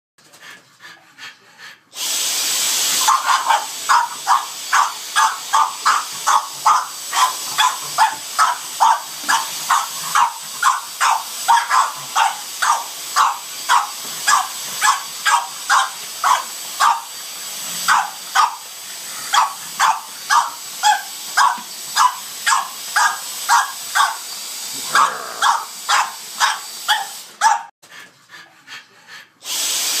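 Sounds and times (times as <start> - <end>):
dog barking: 3.0 - 17.1, 17.9 - 18.6, 19.3 - 24.2, 24.9 - 27.7.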